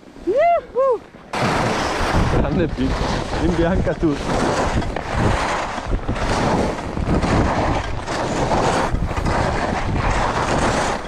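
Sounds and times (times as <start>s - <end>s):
wind buffeting microphone: 0.0s - 11.0s
skis scraping over snow: 1.4s - 11.0s.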